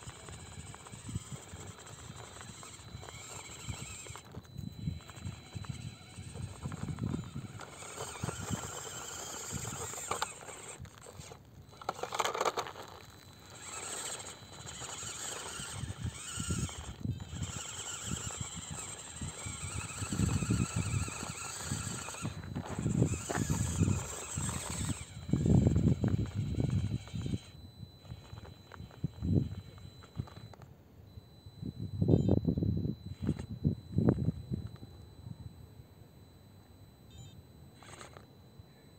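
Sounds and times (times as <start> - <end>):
small electric motor under load: 0.0 - 30.6, 31.3 - 35.1, 36.6 - 38.6.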